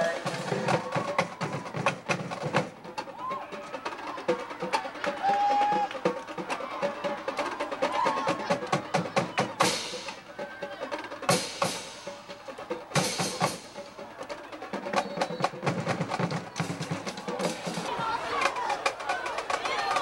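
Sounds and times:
snare drumline cadence: 0.0s - 20.0s.

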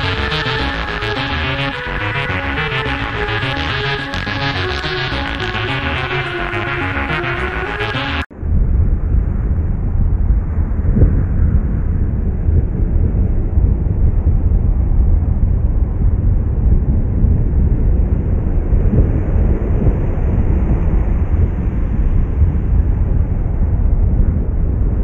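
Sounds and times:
loud low rumble: 0.0s - 25.0s.

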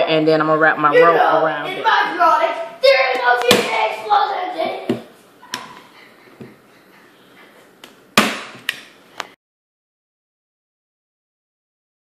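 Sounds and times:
person speaking: 0.0s - 6.0s.

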